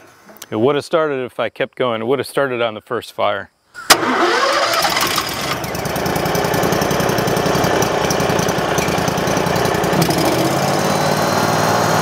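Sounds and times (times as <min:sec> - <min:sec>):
wood chipper engine running: 0:04.0 - 0:12.0.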